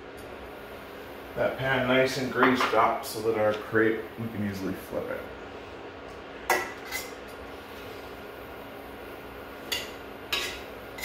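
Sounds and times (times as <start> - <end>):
faint steady hum: 0.0 - 11.0
dishes and utensils clinking: 6.5 - 7.2.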